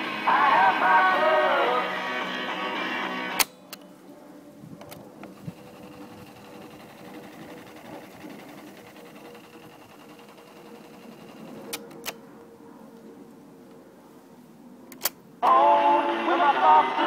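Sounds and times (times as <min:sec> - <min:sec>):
cassette tape winding whir: 0:04.8 - 0:12.2.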